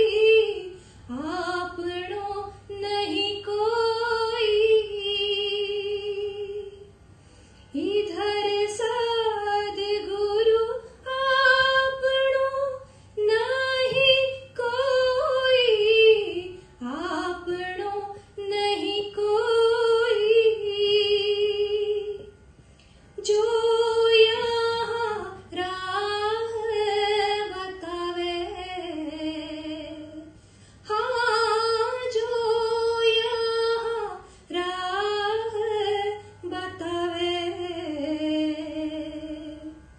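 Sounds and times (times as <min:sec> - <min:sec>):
woman singing unaccompanied: 0:00.0 - 0:06.9, 0:07.7 - 0:22.4, 0:23.2 - 0:39.8.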